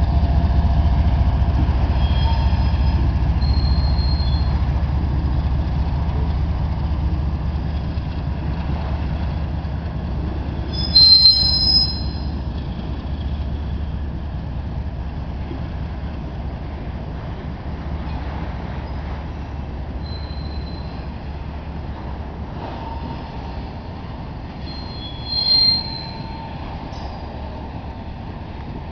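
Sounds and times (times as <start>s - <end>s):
freight train rumbling past: 0.0s - 28.9s
train wheel squeal: 1.9s - 4.7s, 10.6s - 13.8s, 20.0s - 21.2s, 22.6s - 23.8s, 24.6s - 27.5s.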